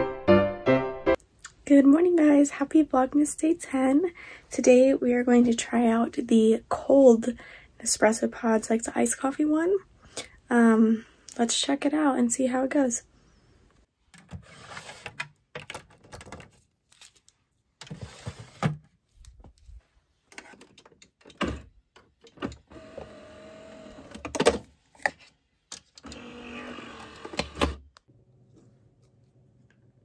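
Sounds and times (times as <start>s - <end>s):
plastic drawer sliding: 14.2s - 15.3s, 17.8s - 18.9s
coffee machine motor whirring: 22.6s - 24.1s, 26.0s - 27.8s.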